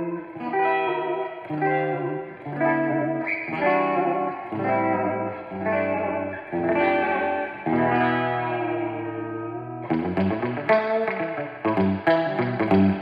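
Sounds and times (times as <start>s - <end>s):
electric guitar chords with reverb: 0.0s - 13.0s.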